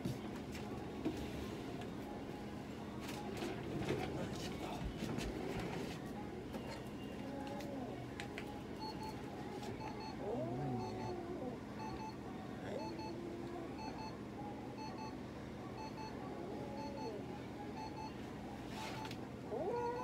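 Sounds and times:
cat yowling: 19.5 - 20.0.

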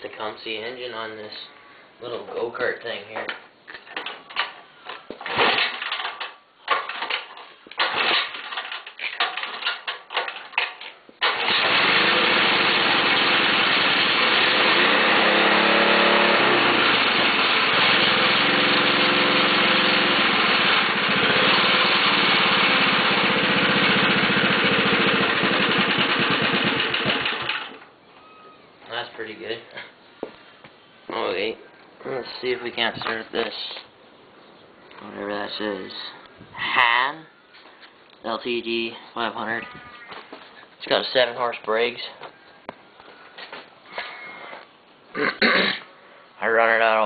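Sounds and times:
pull cord pulls: 4.0 - 12.4
small gasoline engine running: 7.8 - 8.6, 11.2 - 27.8.

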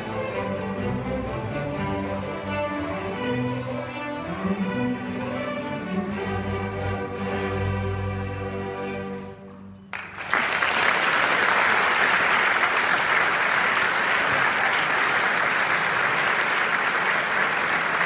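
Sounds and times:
audience applause: 9.9 - 18.0.

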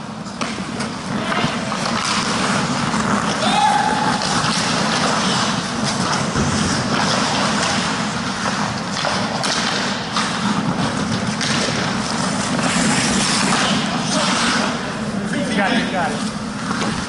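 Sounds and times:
ice rink rushing hiss: 0.2 - 17.0
sticks and skates clacking on ice: 0.2 - 17.0.

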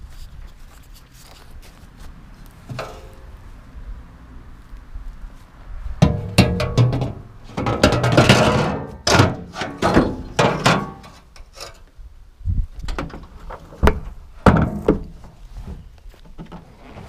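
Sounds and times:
ramp thunks and clatters: 6.0 - 11.1
ramp scraping: 14.7 - 17.0.

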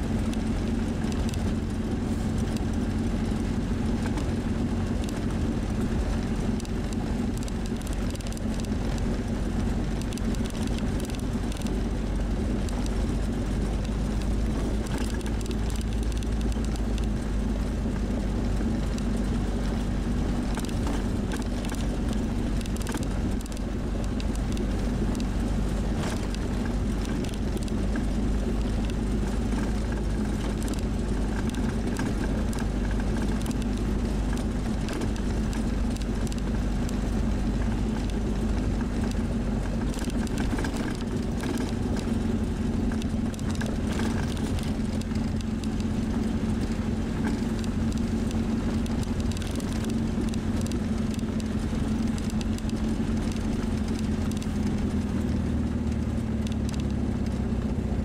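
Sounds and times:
car engine running: 0.0 - 58.0
road noise: 0.0 - 58.0.

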